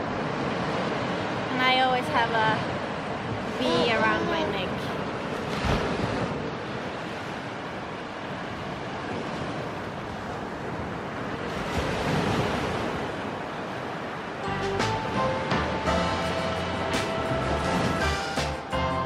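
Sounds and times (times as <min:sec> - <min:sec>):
small waves breaking on beach: 0:00.0 - 0:14.5.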